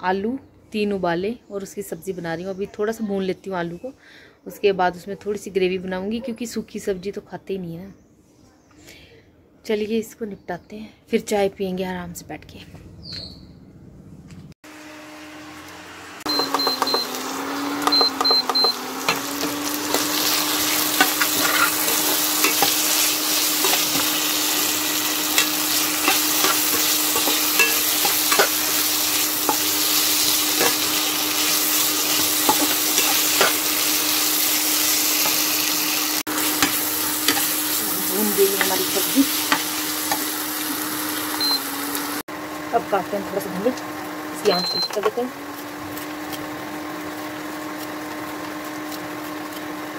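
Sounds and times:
potatoes sizzling in pan: 14.7s - 49.9s
short high beeps: 16.3s - 17.1s, 17.9s - 18.8s, 41.4s - 41.7s, 44.5s - 45.0s
spatula scraping metal pan: 17.8s - 33.8s.

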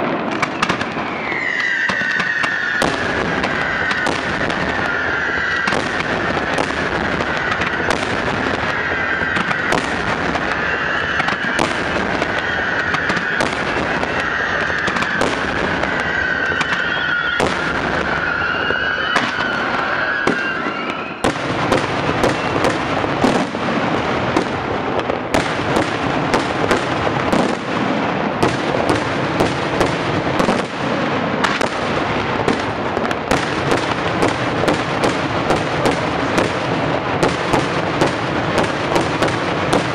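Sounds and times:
fireworks bangs and crackling: 0.0s - 39.9s
high whistle: 1.0s - 6.1s, 10.5s - 21.3s.

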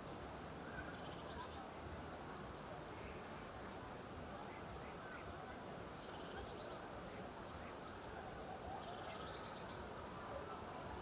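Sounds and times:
lakeside outdoor ambience: 0.0s - 11.0s.

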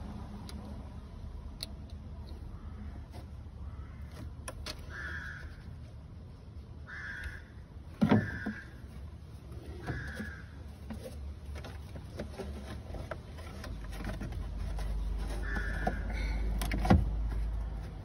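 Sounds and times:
crows cawing: 3.6s - 4.2s, 4.9s - 5.6s, 6.9s - 7.6s, 8.2s - 8.8s, 9.8s - 10.6s, 15.4s - 16.4s.

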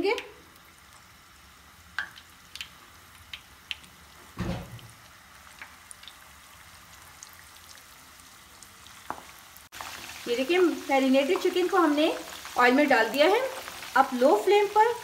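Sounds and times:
chicken sizzling in oil: 0.0s - 15.0s
loud thud: 4.4s - 4.9s.

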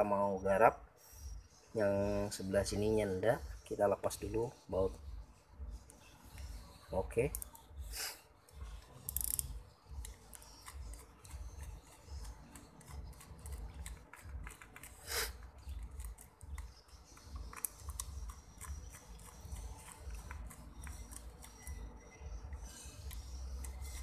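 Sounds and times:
screwdriver clicking and scraping metal: 8.8s - 15.0s, 15.6s - 24.0s.

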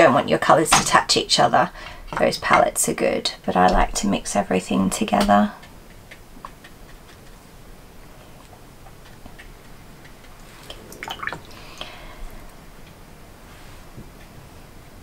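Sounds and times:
brush dabbing paint on paper: 8.4s - 10.8s.

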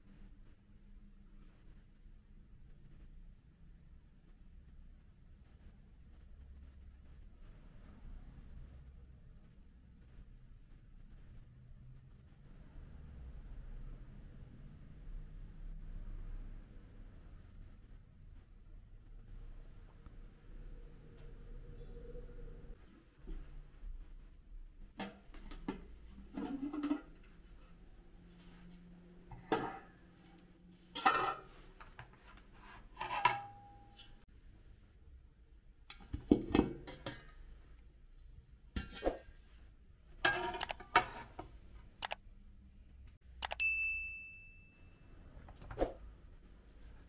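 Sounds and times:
dishes clinking and knocking: 29.3s - 29.9s, 31.0s - 31.6s, 35.9s - 37.4s
bright ding: 43.5s - 45.0s.

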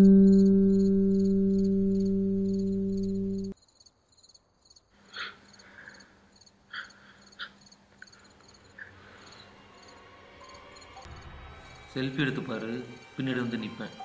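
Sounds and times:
low hum: 0.0s - 3.6s, 8.6s - 14.0s
ringing guitar note: 0.0s - 3.6s
crickets chirping: 0.3s - 14.0s.

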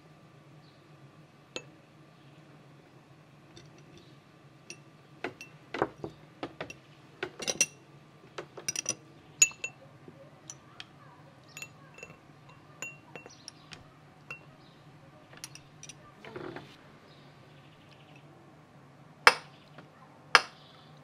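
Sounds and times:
dishes and utensils clinking: 6.6s - 7.8s, 8.6s - 9.8s, 11.5s - 13.7s, 14.3s - 14.5s, 15.4s - 16.0s.

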